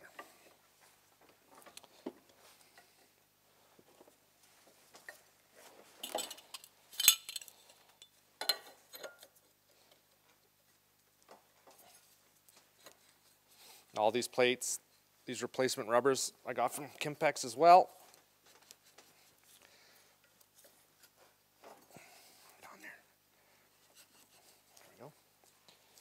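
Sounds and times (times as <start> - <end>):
metal parts clinking and clanking: 6.0 - 9.3.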